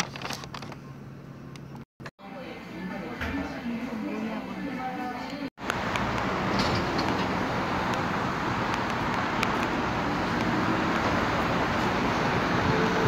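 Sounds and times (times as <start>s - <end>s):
cars driving past: 5.6s - 13.0s.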